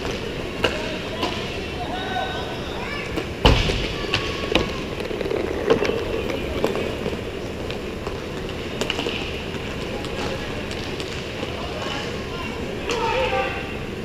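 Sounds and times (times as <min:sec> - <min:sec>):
hockey sticks and puck clacking: 0:00.0 - 0:01.6, 0:03.1 - 0:12.2
rink background noise: 0:00.0 - 0:14.0.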